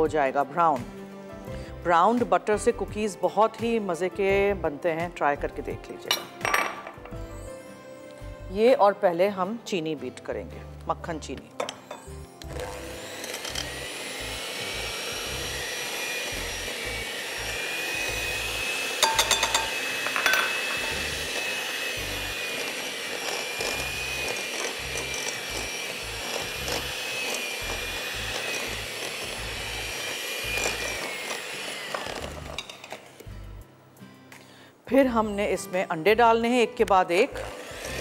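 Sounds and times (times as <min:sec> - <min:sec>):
electric mixer whining: 0:11.8 - 0:33.1, 0:37.3 - 0:38.0.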